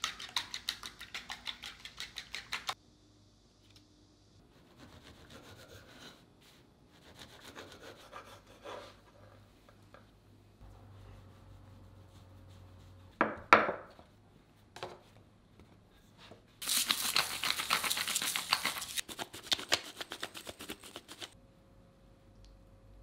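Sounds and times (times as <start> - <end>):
pepper grinder grinding: 16.6 - 21.3.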